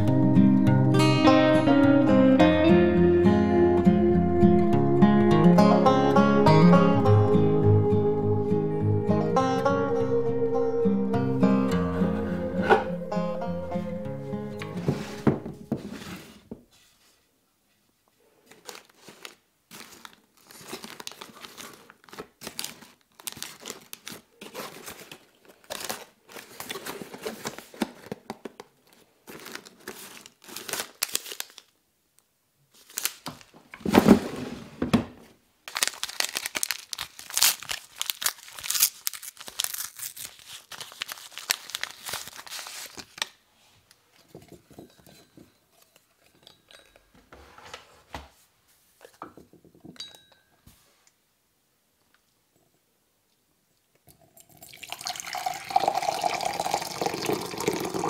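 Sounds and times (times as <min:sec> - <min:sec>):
paper rustling and crinkling: 0:18.2 - 0:31.8, 0:32.7 - 0:34.6, 0:35.6 - 0:45.1
wrapper tearing: 0:18.5 - 0:31.8, 0:32.7 - 0:33.5, 0:35.6 - 0:43.4.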